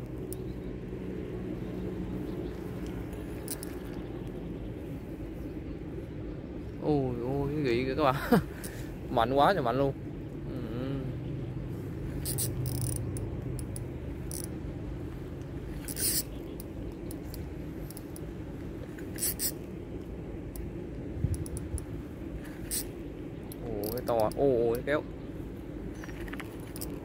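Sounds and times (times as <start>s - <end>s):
low background rumble: 0.0s - 27.0s
fishing reel line scratching: 2.6s - 4.0s, 12.0s - 14.6s, 15.7s - 18.3s, 19.0s - 19.7s, 22.4s - 23.0s.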